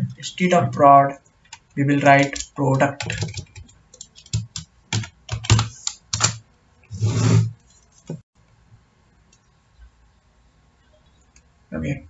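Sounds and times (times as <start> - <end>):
computer keyboard key clicks: 2.2 - 6.4.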